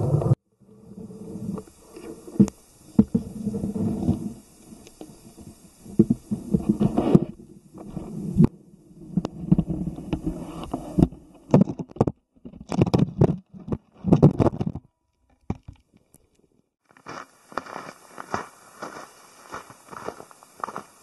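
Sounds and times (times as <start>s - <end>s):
muffled underwater rumbling and knocking: 0.0s - 14.8s
boots crunching through snow: 17.0s - 21.0s.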